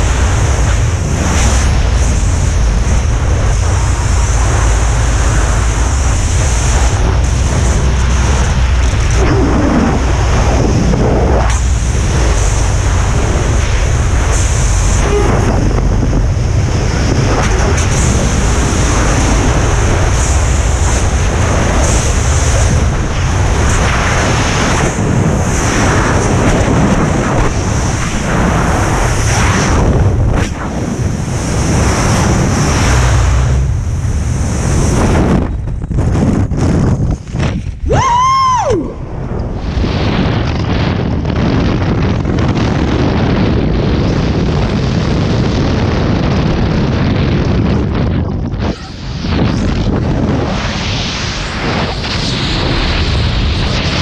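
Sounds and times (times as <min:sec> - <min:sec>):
wind rushing over microphone: 0:00.0 - 0:54.0.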